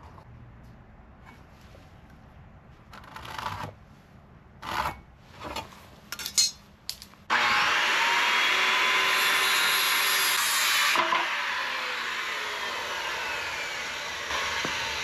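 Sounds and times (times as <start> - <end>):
power tool cutting wood: 7.3 - 15.0.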